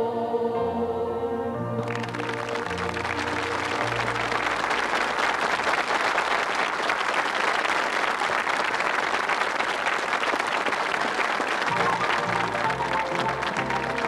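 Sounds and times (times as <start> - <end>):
choir chord: 0.0 - 4.7
audience applauding: 1.8 - 14.0.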